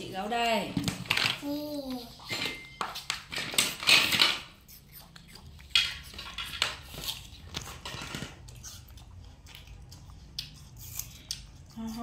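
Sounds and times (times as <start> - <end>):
small plastic things clattering: 3.3 - 4.5, 5.8 - 8.5.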